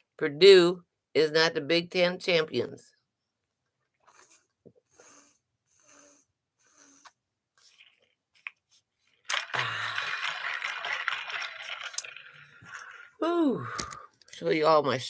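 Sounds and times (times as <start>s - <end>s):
person gulping water: 9.3s - 10.5s.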